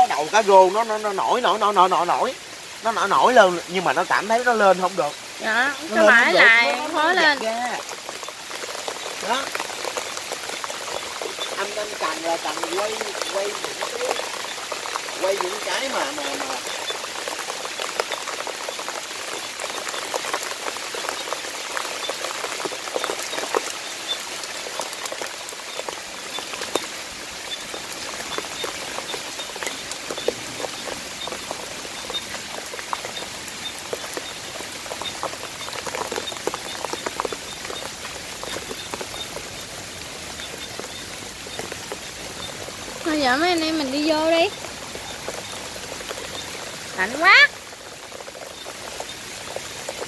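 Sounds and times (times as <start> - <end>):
heavy rain: 0.0 - 50.0.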